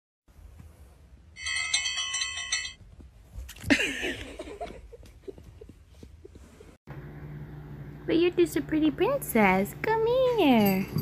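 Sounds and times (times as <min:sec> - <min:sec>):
bell-like chime: 0:01.4 - 0:02.8.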